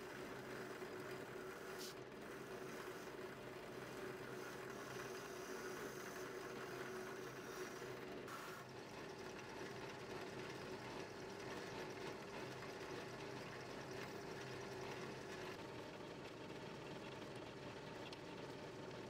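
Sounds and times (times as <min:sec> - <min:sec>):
drill press motor humming: 0:00.0 - 0:08.7.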